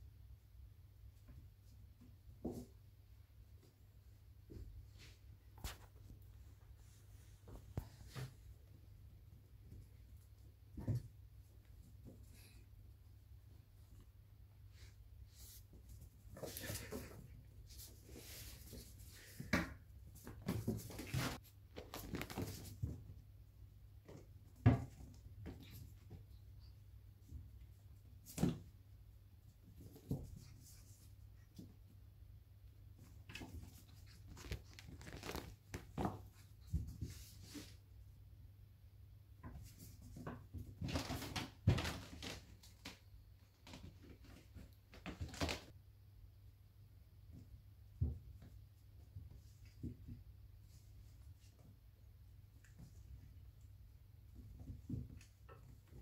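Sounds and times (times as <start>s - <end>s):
kittens scuffing and rustling: 0.0s - 56.0s
kitten scuffing on tiled floor: 14.7s - 23.2s, 33.0s - 38.0s.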